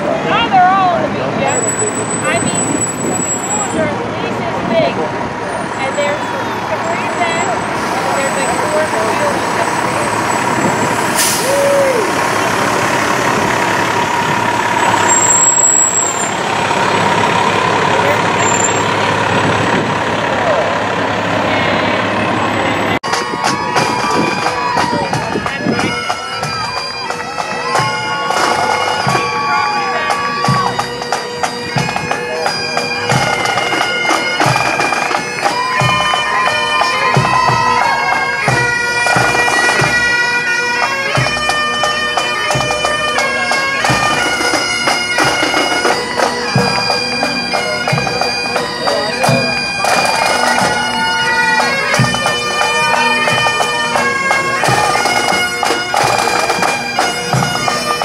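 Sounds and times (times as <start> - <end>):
drum beating: 16.3 - 58.0
bagpipe melody with drone: 23.1 - 58.0.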